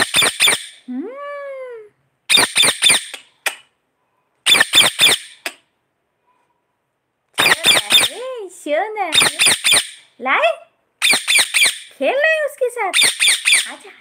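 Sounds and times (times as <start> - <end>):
parakeet screeching: 0.0 - 0.8, 2.3 - 3.2, 4.4 - 5.5, 7.4 - 8.2, 9.1 - 10.1, 11.0 - 11.9, 12.9 - 13.8.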